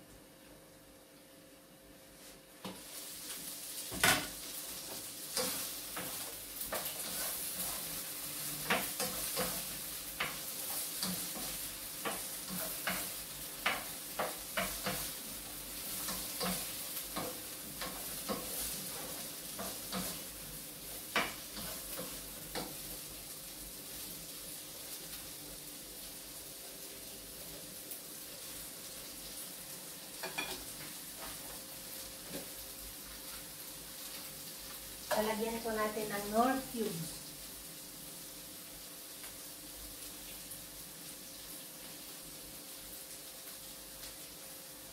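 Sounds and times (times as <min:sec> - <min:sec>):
beans sizzling in frying pan: 0:02.1 - 0:44.9
utensil clacking and scraping pan: 0:04.9 - 0:15.2.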